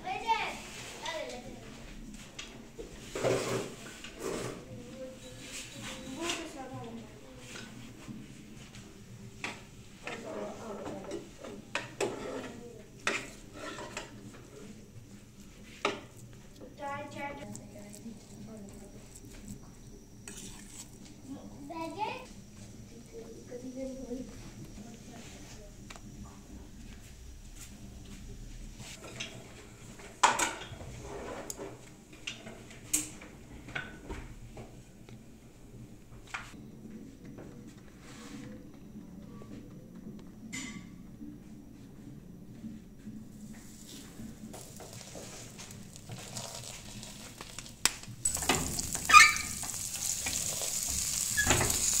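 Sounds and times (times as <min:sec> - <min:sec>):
steel spoon scraping a plate: 0:12.0 - 0:14.1.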